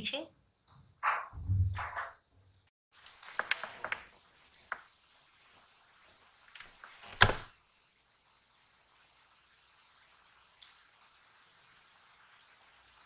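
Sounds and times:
faint sizzle of deep-frying: 0:02.9 - 0:13.0.

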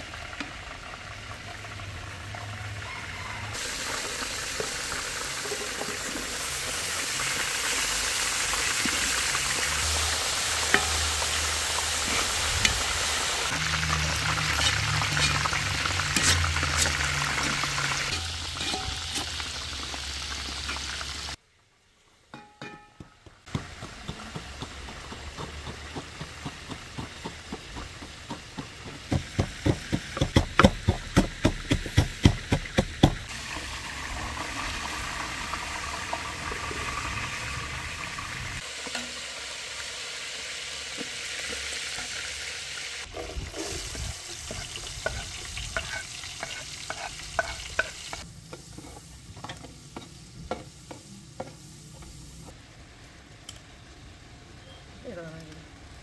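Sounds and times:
steady sizzling: 0:03.5 - 0:21.4, 0:23.4 - 0:54.2
pestle pounding in wooden mortar: 0:23.2 - 0:33.3.

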